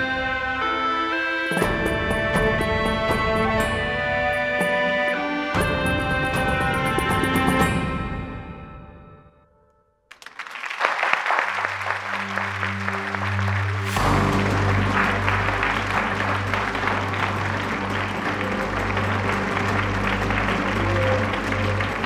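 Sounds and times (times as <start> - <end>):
background music low notes: 0.0 - 9.8, 11.9 - 22.0
audience applauding: 10.1 - 22.0.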